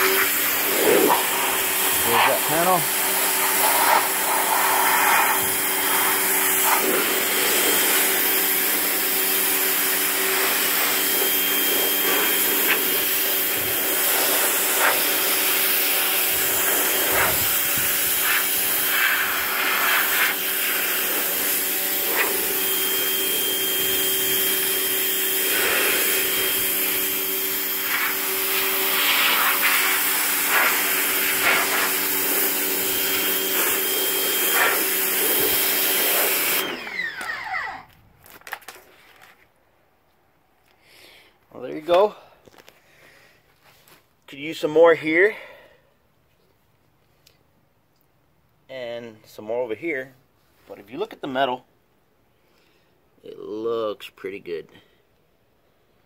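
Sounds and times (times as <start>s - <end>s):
pressure washer pump humming: 0.0s - 37.9s.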